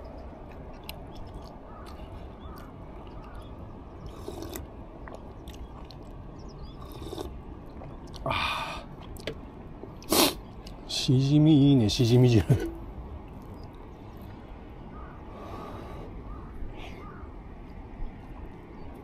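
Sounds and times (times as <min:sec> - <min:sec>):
person chewing food: 0:00.4 - 0:08.3.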